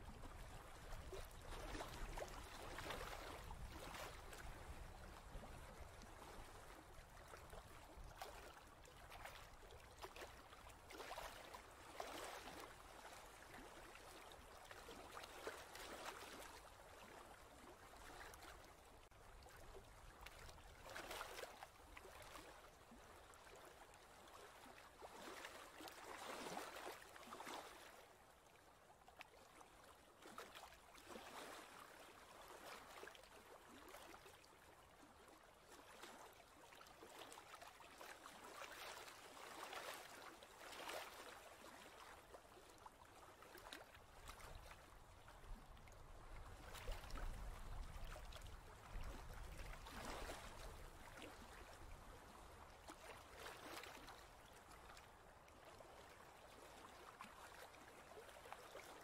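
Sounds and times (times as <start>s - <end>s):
faint ocean waves: 0.0s - 28.5s.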